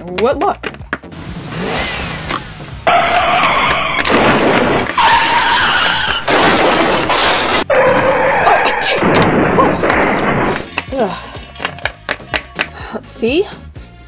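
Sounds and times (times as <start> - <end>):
car tyres screeching: 1.0 - 8.8.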